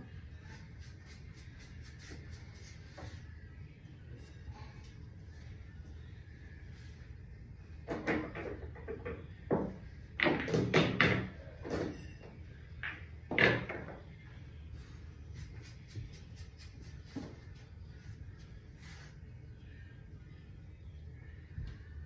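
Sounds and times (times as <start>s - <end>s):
low steady hum: 0.0s - 22.0s
knocks and clacks at pool table: 7.8s - 14.1s.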